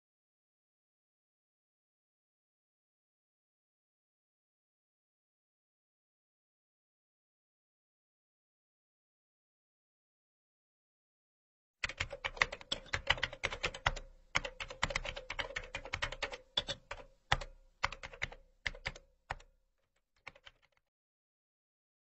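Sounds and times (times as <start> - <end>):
computer keyboard typing: 11.8 - 19.5, 20.2 - 20.8.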